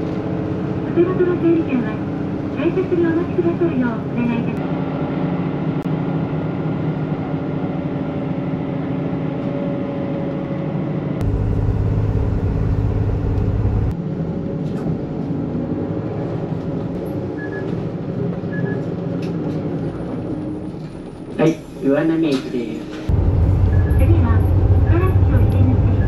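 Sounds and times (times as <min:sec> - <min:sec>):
bus engine and road noise: 0:00.0 - 0:26.0
deep loud rumble: 0:11.2 - 0:14.0, 0:23.1 - 0:26.0.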